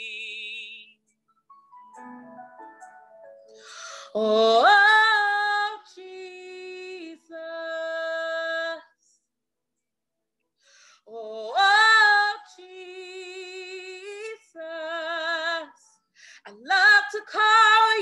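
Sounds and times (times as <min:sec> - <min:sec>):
woman singing a cappella: 0:00.0 - 0:01.0, 0:04.1 - 0:09.1, 0:11.0 - 0:18.0.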